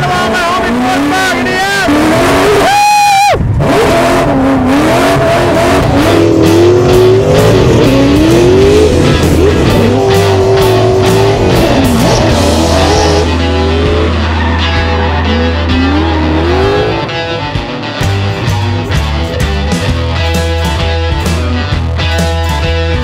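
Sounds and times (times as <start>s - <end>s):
car engine revving: 0.0s - 21.5s
rock music with guitar: 0.0s - 23.0s
person whooping: 2.4s - 3.4s.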